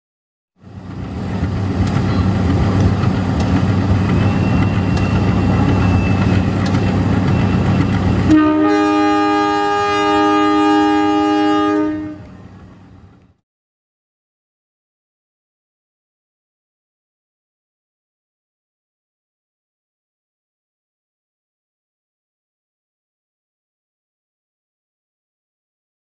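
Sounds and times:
locomotive engine rumbling: 0.6 - 13.4
locomotive horn blast: 7.5 - 12.5.

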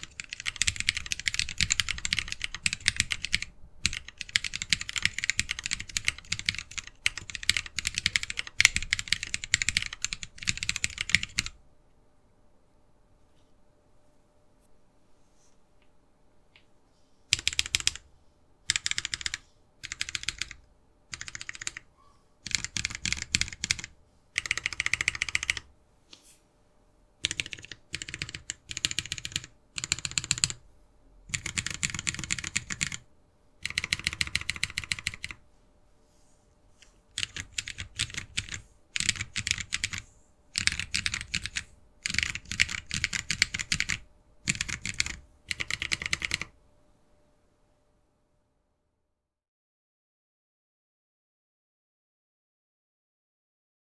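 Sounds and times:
mechanical keyboard typing: 0.0 - 11.6, 17.3 - 18.0, 18.7 - 25.7, 27.2 - 30.6, 31.3 - 33.0, 33.6 - 35.4, 37.1 - 46.6.

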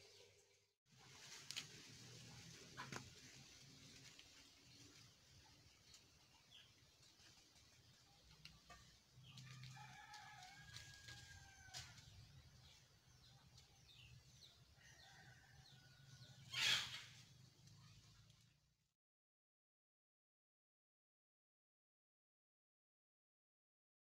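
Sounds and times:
faint rooster crowing: 9.3 - 12.2, 14.7 - 16.9.

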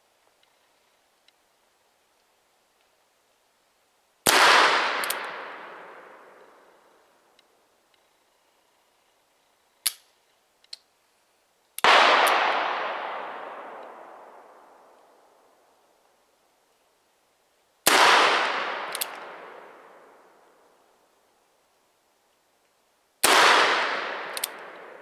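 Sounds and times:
revolver hammer cocking clicks: 18.9 - 19.2, 24.3 - 24.8.

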